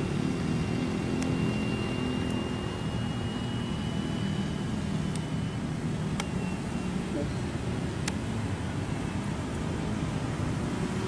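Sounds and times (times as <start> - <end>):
model airboat motor whine: 0.0 - 7.4
propeller hum: 0.0 - 11.0.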